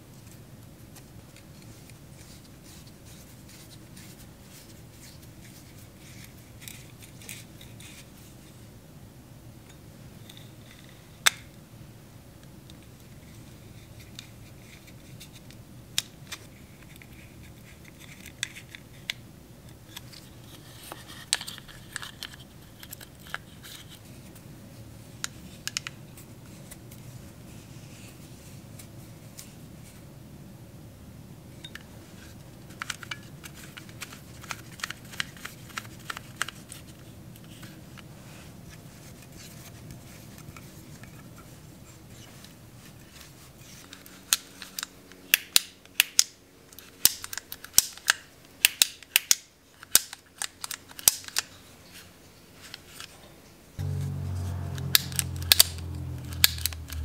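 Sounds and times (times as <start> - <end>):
low hum: 53.8 - 57.0.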